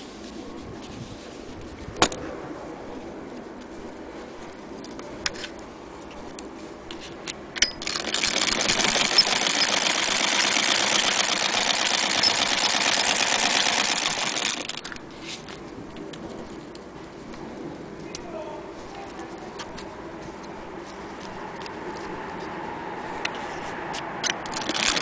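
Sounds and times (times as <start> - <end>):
sharp clicks: 7.3 - 15.0, 24.0 - 25.0
sewing machine running: 7.8 - 15.0, 24.5 - 25.0.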